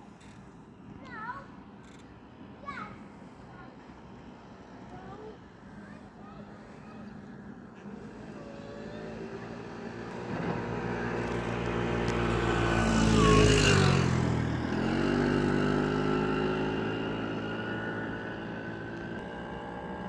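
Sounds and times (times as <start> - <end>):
vehicle engine passing by: 6.8 - 20.0.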